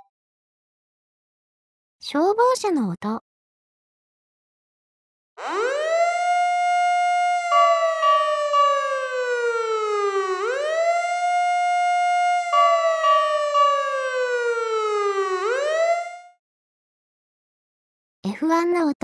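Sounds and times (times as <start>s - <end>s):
fire engine siren wailing: 5.4s - 16.4s.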